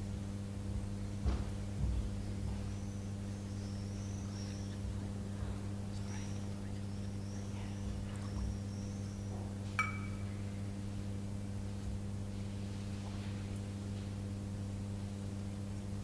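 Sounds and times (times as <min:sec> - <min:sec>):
electrical mains hum: 0:00.0 - 0:16.0
metal vessels clinking: 0:09.8 - 0:10.3.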